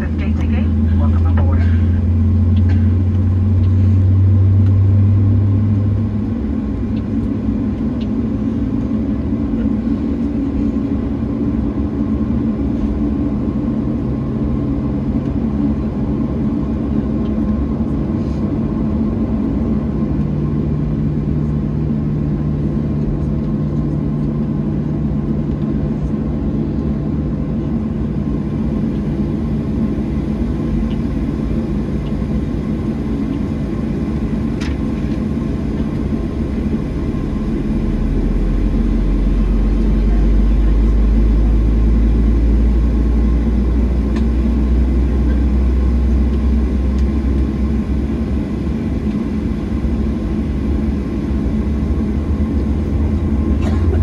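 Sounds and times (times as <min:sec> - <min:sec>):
aircraft cabin rumble: 0:00.0 - 0:54.0
loud low hum: 0:00.0 - 0:54.0
low tone stepping up in pitch: 0:36.0 - 0:43.2.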